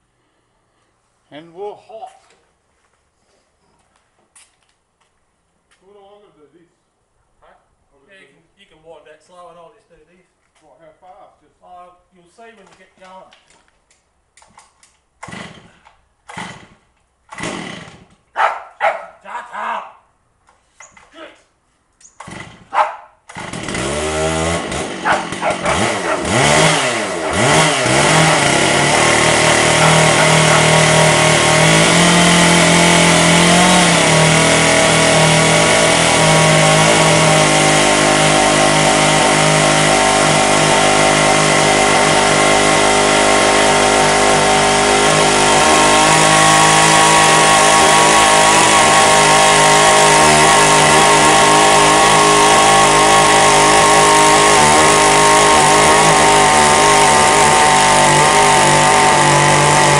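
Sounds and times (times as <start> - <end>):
chainsaw pull-start: 14.4 - 18.3, 22.0 - 59.9
chainsaw cutting wood: 14.4 - 19.0, 22.1 - 59.9.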